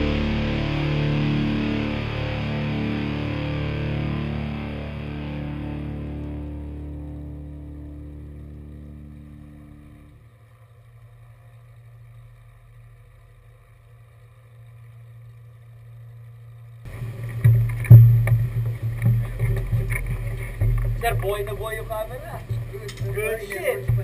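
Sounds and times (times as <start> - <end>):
background music: 0.0 - 10.2
faint low hum: 0.0 - 24.0
loud rumbling noise: 0.0 - 24.0
sharp knocks: 17.4 - 21.8.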